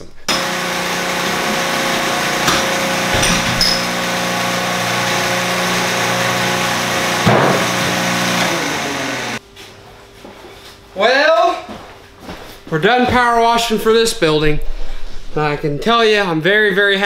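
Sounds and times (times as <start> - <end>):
pressure washer engine running: 0.3 - 9.4.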